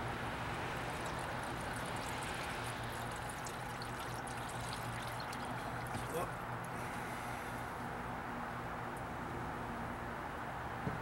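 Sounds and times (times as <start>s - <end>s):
liquid pouring through funnel: 0.4s - 6.3s.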